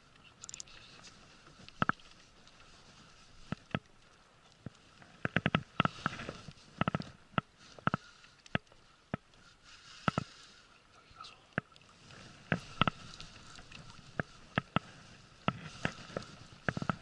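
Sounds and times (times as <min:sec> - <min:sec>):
fishing reel clicking and knocking: 0:00.4 - 0:00.7.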